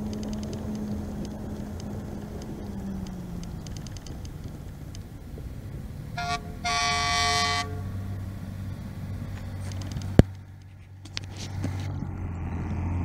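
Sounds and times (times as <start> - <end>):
sharp click: 0.0 - 5.1
low engine hum: 0.0 - 13.0
truck horn blasts: 6.1 - 8.3.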